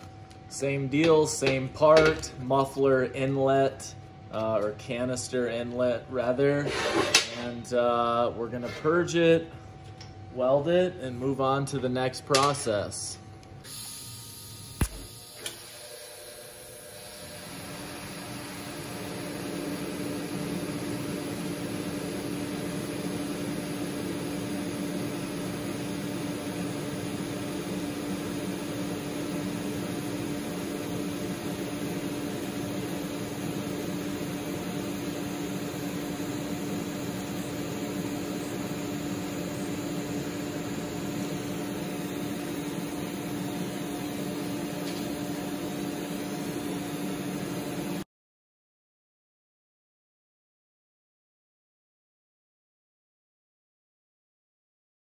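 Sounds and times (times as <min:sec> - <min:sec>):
welding arc hissing buzz: 0:13.6 - 0:48.0.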